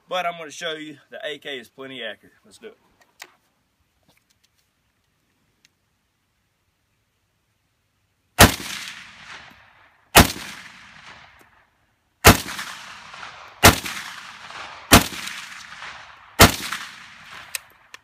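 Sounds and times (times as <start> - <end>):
rifle shots with echo: 8.4 - 11.6, 12.2 - 17.9.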